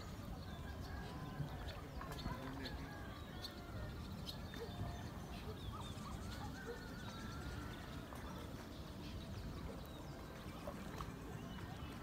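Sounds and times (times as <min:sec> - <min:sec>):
birds chirping and whistling: 0:00.0 - 0:12.0.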